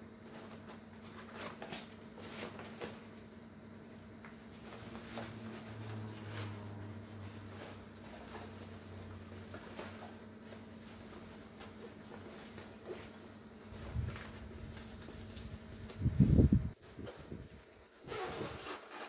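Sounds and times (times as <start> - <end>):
steady low hum: 0.0 - 18.7
fabric bag rustling: 4.4 - 19.0.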